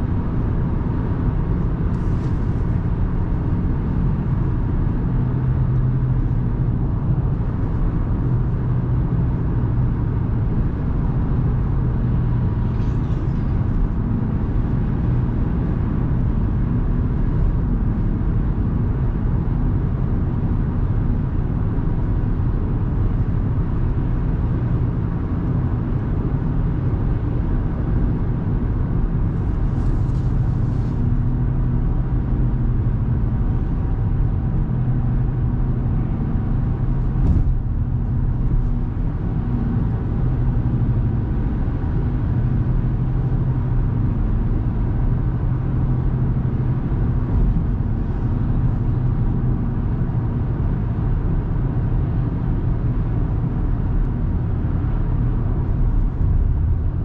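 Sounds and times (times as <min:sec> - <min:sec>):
car cruising road rumble: 0:00.0 - 0:57.0.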